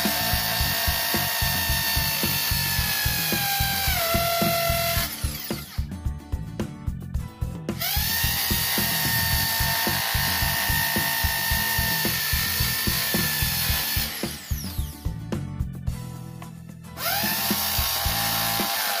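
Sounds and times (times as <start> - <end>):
impact drill whining: 0.0 - 5.9, 7.8 - 14.9, 17.0 - 19.0
background music with steady beat: 0.0 - 19.0.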